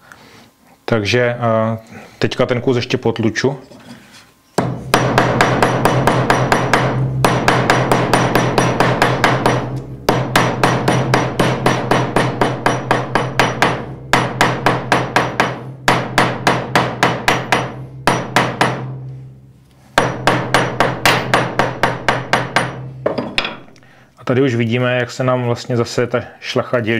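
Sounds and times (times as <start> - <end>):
hammer pounding on anvil: 4.6 - 19.2, 20.0 - 23.7.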